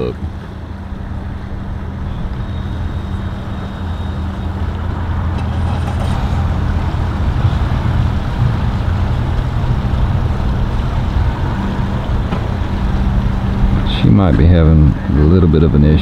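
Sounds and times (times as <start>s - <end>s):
engine idling: 0.0s - 16.0s.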